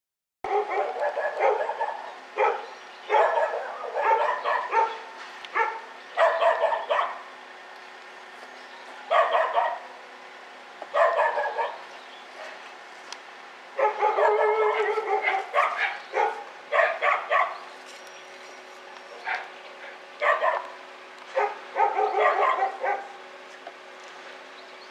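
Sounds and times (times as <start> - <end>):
dogs barking and yelping: 0.5 - 7.3, 9.0 - 10.0, 10.8 - 12.6, 13.7 - 23.3
steady low hum: 0.5 - 24.9.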